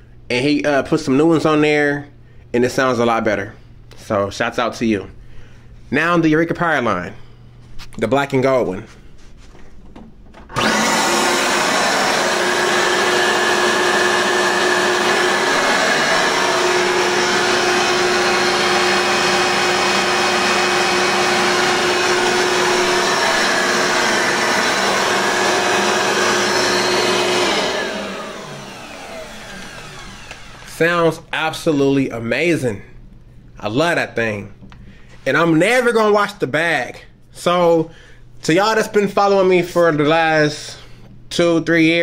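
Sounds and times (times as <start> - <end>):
vacuum cleaner running: 10.5 - 31.2.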